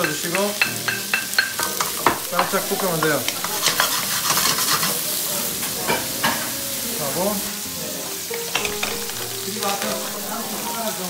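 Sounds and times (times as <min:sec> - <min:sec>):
food sizzling in a frying pan: 0:00.0 - 0:11.0
utensil scraping and knocking pan: 0:01.8 - 0:04.9, 0:08.6 - 0:10.6.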